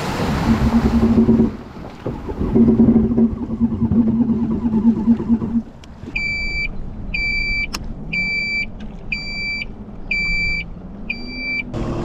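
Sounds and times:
jet ski engine running: 0:00.0 - 0:06.6.

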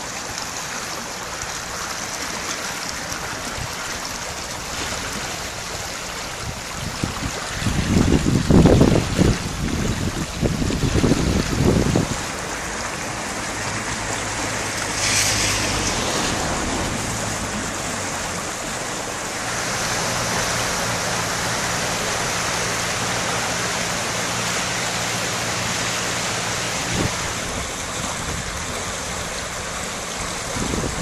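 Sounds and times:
floodwater rushing: 0:00.0 - 0:31.0
brief hiss: 0:14.9 - 0:16.4.

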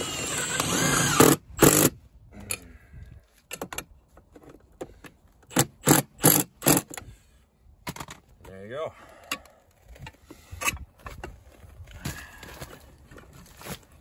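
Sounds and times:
cordless drill motor whine: 0:00.0 - 0:01.9.

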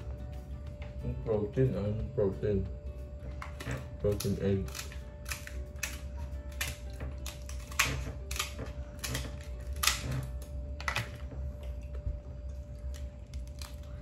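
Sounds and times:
crab shell cracking and snapping: 0:03.4 - 0:11.8, 0:12.8 - 0:14.0.

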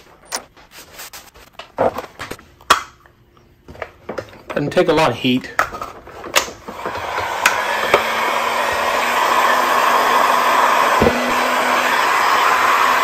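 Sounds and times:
heat gun blowing: 0:06.6 - 0:13.0.

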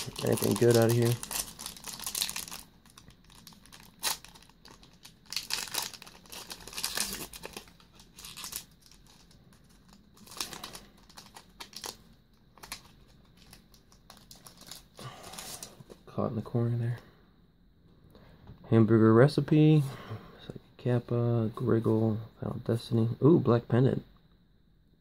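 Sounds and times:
foil wrapper crinkling and tearing: 0:00.0 - 0:15.7.

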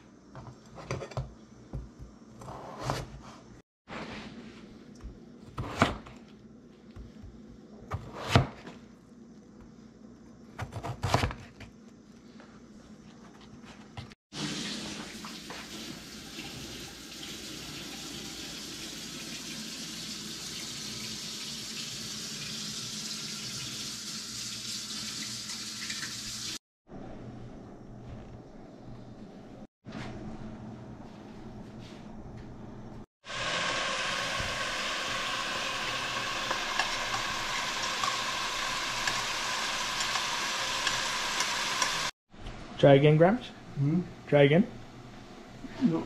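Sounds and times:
knife chopping on cutting board: 0:05.5 - 0:06.2, 0:07.9 - 0:08.7
tap water running: 0:14.3 - 0:26.6, 0:33.2 - 0:42.1.

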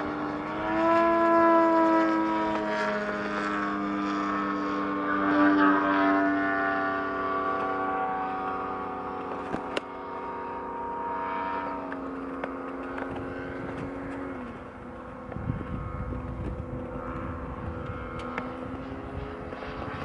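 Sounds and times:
model plane engine and propeller: 0:00.0 - 0:20.0
wind rumbling on microphone: 0:11.6 - 0:20.0.

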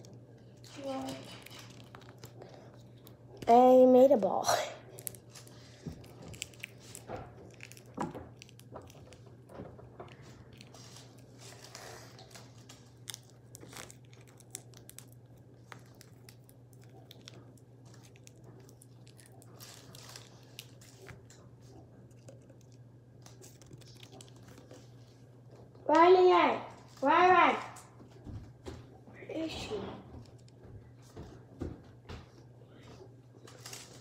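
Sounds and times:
small objects clicking and rustling: 0:00.0 - 0:03.1
steady low hum: 0:00.0 - 0:34.0.

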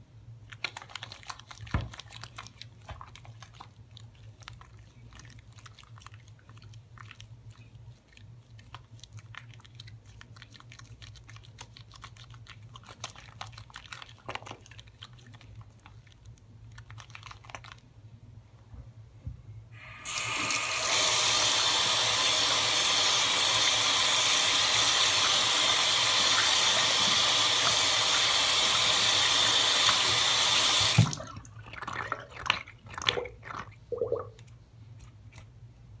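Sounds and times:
faucet water splashing over hands: 0:20.0 - 0:34.4
water drips: 0:30.8 - 0:34.5.

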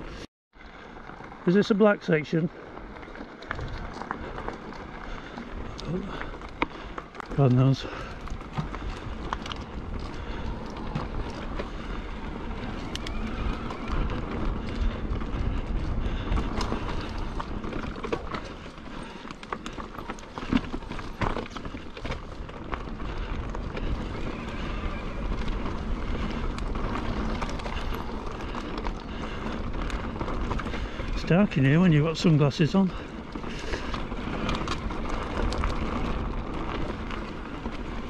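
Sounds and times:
tyres crunching over gravel: 0:00.1 - 0:38.0
wind rumbling on microphone: 0:02.7 - 0:38.0
bike knocks and rattles: 0:14.2 - 0:24.2.

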